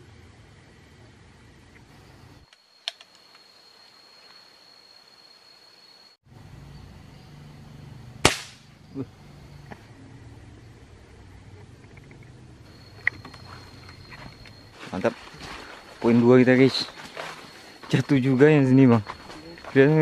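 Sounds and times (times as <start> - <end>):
air rifle shot crack: 8.2 - 8.7.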